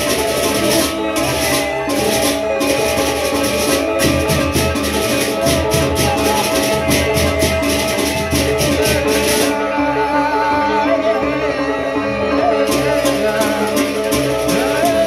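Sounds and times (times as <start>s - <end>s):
sharp high percussion strokes: 0.0s - 9.6s
bamboo flute melody: 0.0s - 15.0s.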